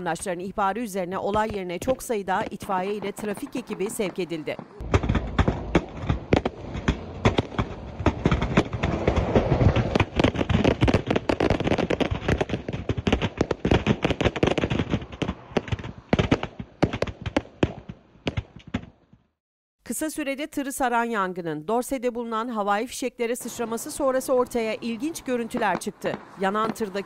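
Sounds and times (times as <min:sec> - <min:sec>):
fireworks crackling and banging: 0:01.2 - 0:19.2, 0:23.4 - 0:27.0.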